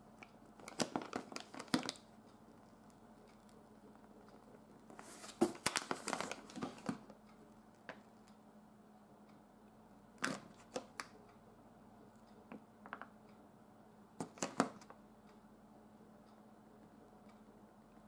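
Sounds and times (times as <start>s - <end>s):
paper packaging rustling: 0.6s - 2.0s, 4.9s - 7.1s.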